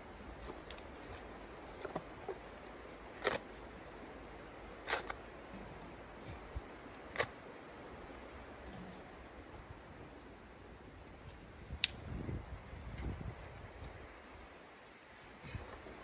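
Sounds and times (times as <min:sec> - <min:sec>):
small sticks snapping and clicking: 0:11.8 - 0:12.0.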